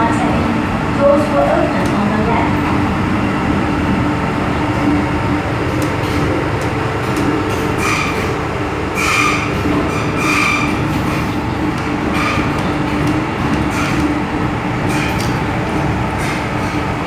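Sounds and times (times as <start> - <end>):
train wheels rumbling: 0.0 - 17.0
high-pitched wheel squeals: 7.8 - 8.4, 9.0 - 11.3.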